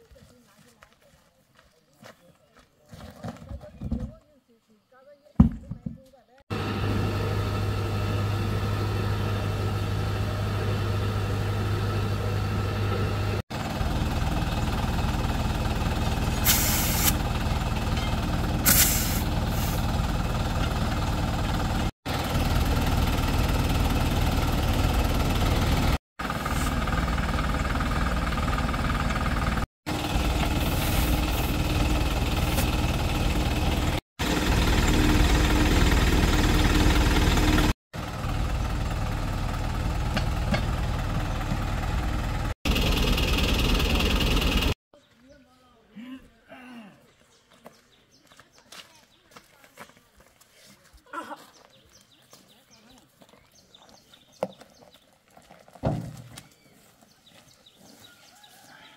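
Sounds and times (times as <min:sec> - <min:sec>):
engine running steadily: 0:06.5 - 0:44.8
short hisses of air: 0:16.4 - 0:17.2, 0:18.6 - 0:19.8.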